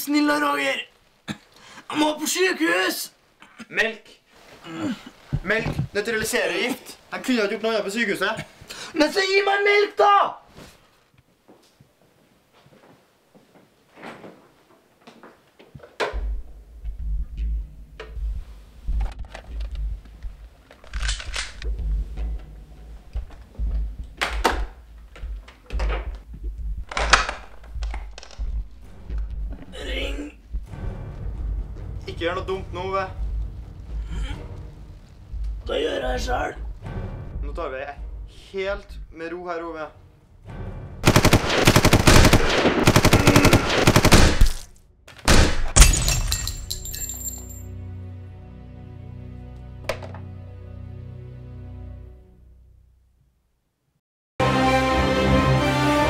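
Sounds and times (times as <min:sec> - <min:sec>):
steady low rumble: 0:26.1 - 0:37.6
automatic gunfire: 0:41.0 - 0:44.7.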